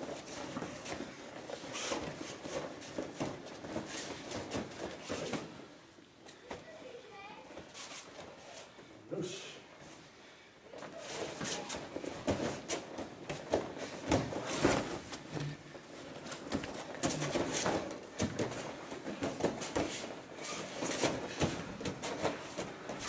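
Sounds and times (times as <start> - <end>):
cloth rustling: 0.0 - 6.4, 10.8 - 23.0
bare feet thudding on mats: 10.9 - 23.0.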